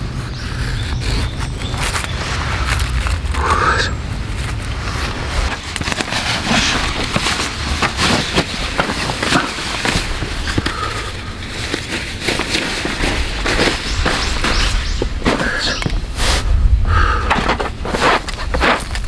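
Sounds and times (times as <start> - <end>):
knife shaving wood: 0.0 - 3.6, 4.4 - 14.5
jacket rustling and scraping: 1.3 - 16.5, 17.5 - 19.0.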